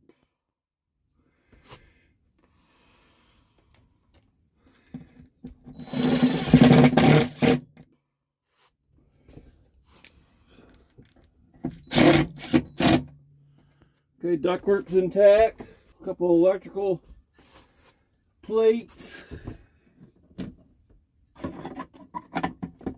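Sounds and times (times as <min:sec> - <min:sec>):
cordless drill driving a screw: 0:05.8 - 0:07.6, 0:11.8 - 0:13.1.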